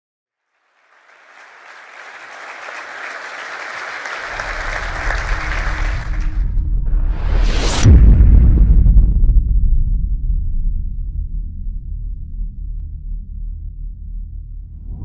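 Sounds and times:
crowd applause: 0.4s - 6.5s
deep low rumble: 6.0s - 15.0s.

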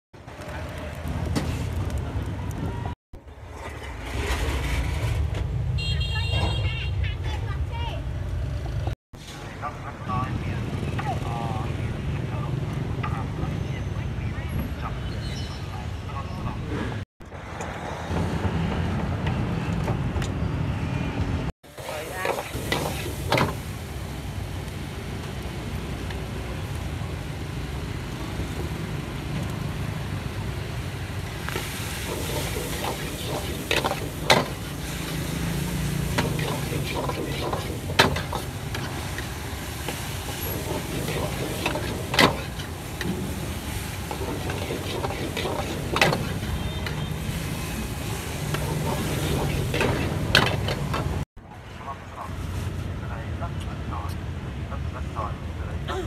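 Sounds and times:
food sizzling in a wok: 21.7s - 51.2s
metal spatula scraping a pan: 31.9s - 39.0s, 39.9s - 43.1s, 43.7s - 51.2s.

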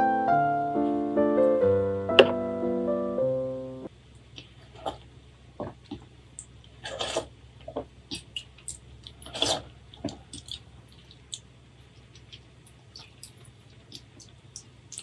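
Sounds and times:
wet slurps: 6.8s - 7.3s, 8.1s - 15.0s.

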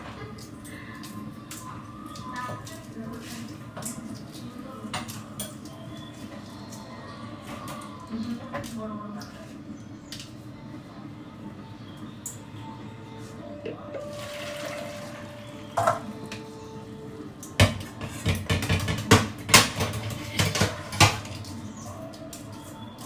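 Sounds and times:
eggs knocking on metal colander: 17.6s - 21.3s.

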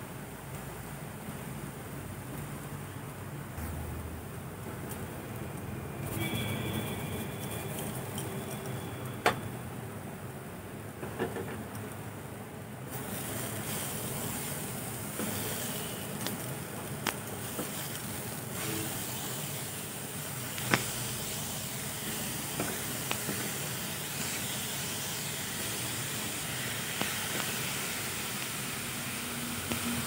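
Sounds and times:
food sizzling in a wok: 12.9s - 30.0s.

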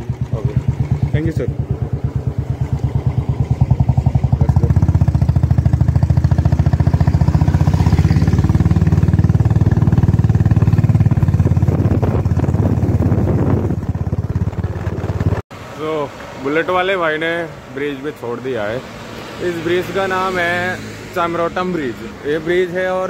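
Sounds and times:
motorcycle engine thumping: 0.0s - 15.4s.

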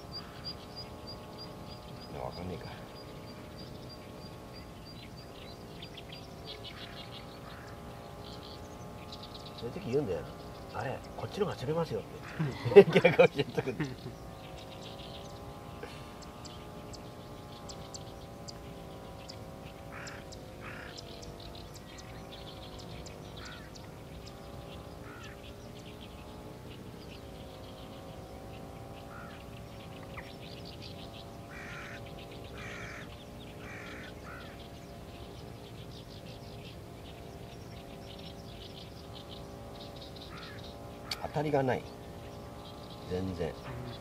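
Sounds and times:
birds harsh calls: 0.0s - 44.0s
droning hum: 0.0s - 44.0s
high bird chirps: 13.8s - 44.0s.

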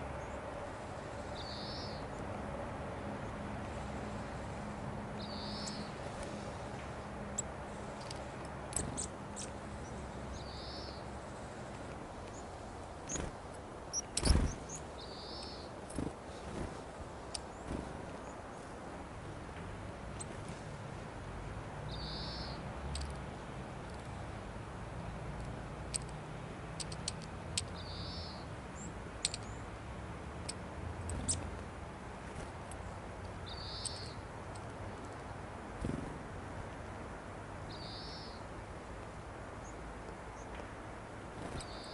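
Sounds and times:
small birds chirping: 0.0s - 2.3s, 3.2s - 18.8s, 21.8s - 24.3s, 26.8s - 29.8s, 30.4s - 31.6s, 32.3s - 36.2s, 37.7s - 38.5s, 39.6s - 40.6s, 41.3s - 41.9s
low background noise: 0.0s - 41.9s
faint high bird chirps: 1.3s - 2.2s, 5.2s - 5.9s, 8.8s - 11.1s, 13.9s - 15.7s, 21.9s - 22.6s, 27.7s - 29.6s, 33.4s - 34.2s, 37.7s - 38.4s, 41.6s - 41.9s
bird wings fluttering: 13.0s - 13.4s, 14.0s - 14.8s, 15.9s - 16.9s, 17.5s - 18.2s.

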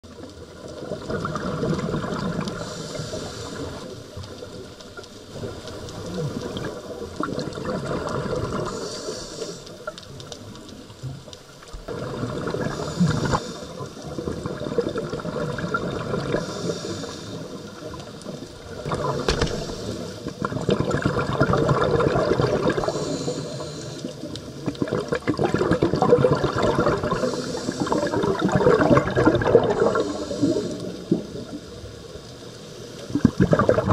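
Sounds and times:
gurgling exhaled bubbles: 0.1s - 11.2s, 11.8s - 32.2s, 33.0s - 33.9s
regulator inhalation hiss: 2.6s - 4.0s, 8.7s - 9.9s, 12.7s - 13.9s, 16.4s - 17.9s, 19.2s - 20.4s, 22.8s - 24.3s, 27.0s - 28.2s, 29.9s - 31.2s.

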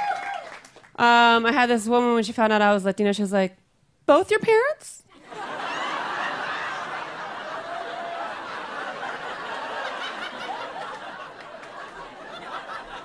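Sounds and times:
audience laughing: 5.2s - 13.0s.

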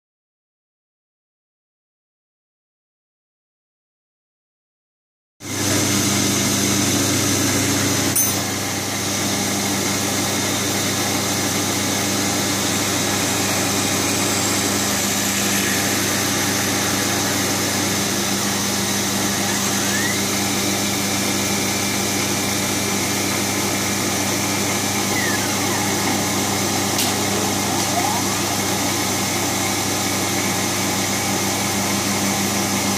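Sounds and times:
milling machine hum: 5.5s - 32.9s
high machine whine: 6.9s - 32.9s.

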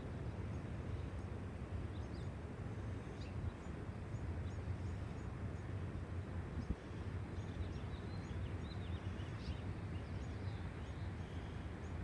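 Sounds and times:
faint bird chirps: 6.5s - 12.0s.

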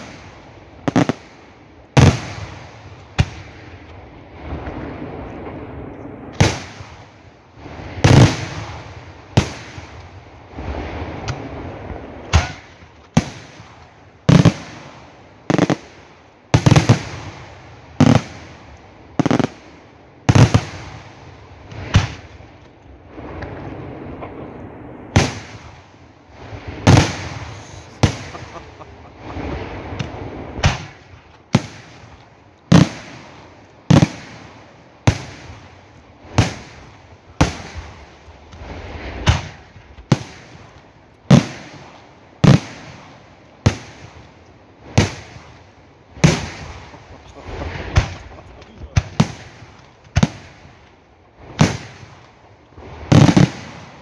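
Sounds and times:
firework shells bursting: 26.8s - 33.3s.

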